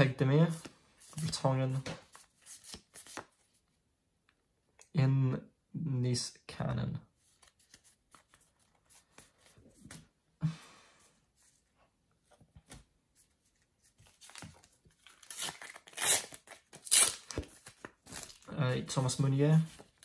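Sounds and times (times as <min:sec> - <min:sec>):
sticker packet wrapper ripping: 0:15.0 - 0:18.5.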